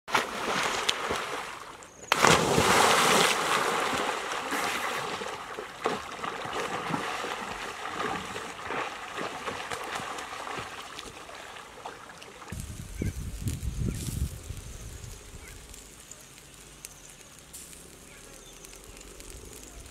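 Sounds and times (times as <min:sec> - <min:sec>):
people swimming splashing water: 0:00.1 - 0:12.6.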